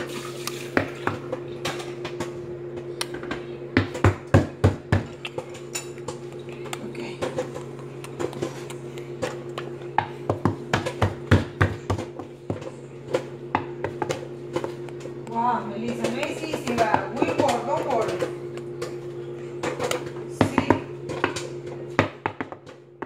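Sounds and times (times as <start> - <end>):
microwave oven humming: 0.0 - 23.0
popcorn popping: 0.4 - 23.0.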